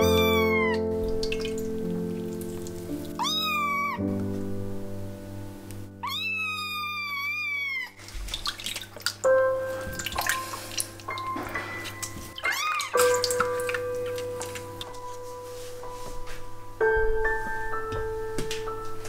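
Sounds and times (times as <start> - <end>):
kitten meowing: 0.0 - 0.9, 3.2 - 4.0, 6.0 - 8.0, 12.4 - 13.0
water splashing and dripping: 0.7 - 3.6, 7.7 - 15.0.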